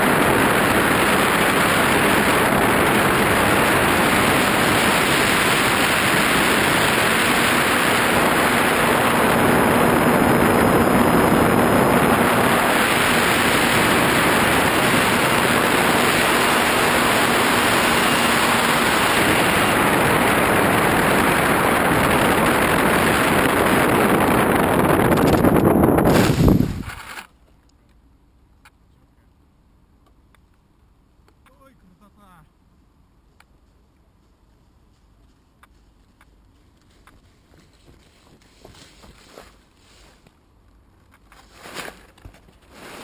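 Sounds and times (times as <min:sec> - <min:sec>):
model plane motor and propeller: 0:00.0 - 0:25.7, 0:26.6 - 0:27.3
airflow rushing over camera: 0:00.0 - 0:27.3
faint steady hum: 0:00.0 - 0:42.8.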